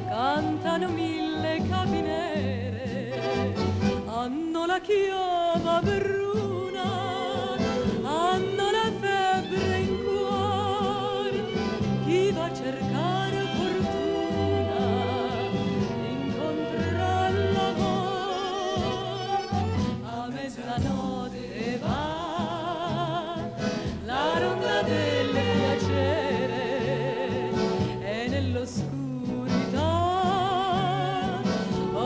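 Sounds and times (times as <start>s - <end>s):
woman singing with vibrato: 0.0s - 32.0s
dance band playing: 3.0s - 4.1s, 6.5s - 22.2s, 23.6s - 28.0s.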